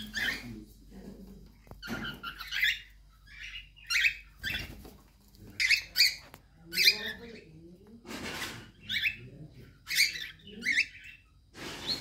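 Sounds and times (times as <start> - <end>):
cockatiel hissing: 11.5 - 12.0.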